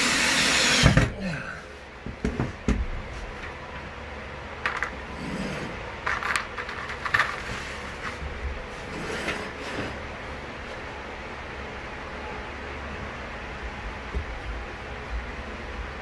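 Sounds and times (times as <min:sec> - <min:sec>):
metal hinges clinking and scraping: 0:04.6 - 0:08.2.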